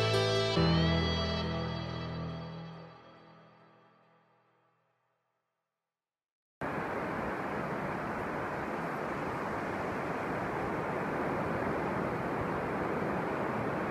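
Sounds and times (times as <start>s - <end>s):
surf on a beach: 6.6s - 13.9s
wind buffeting microphone: 6.6s - 13.9s.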